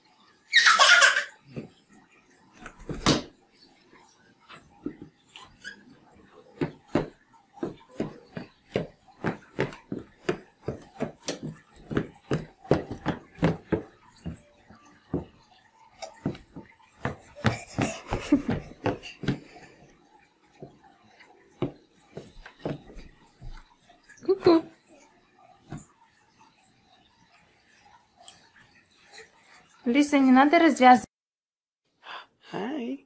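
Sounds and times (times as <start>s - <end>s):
shoes tapping on hardwood floor: 4.8s - 5.2s, 6.6s - 19.9s, 21.6s - 24.7s, 25.7s - 25.9s.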